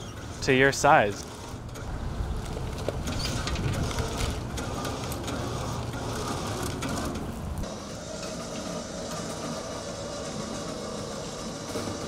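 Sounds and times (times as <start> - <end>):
hand winch clicking and rattling: 0.0 - 7.7.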